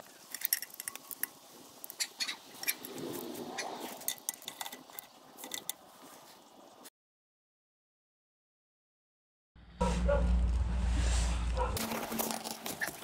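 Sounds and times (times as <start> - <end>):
metallic clicks and knocks: 3.9 - 5.8.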